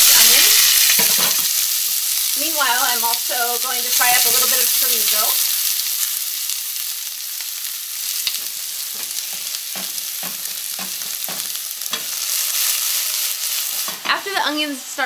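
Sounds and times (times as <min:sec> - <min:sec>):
food sizzling in pans: 0:00.0 - 0:15.0
wooden spoon knocking skillet: 0:08.3 - 0:12.2.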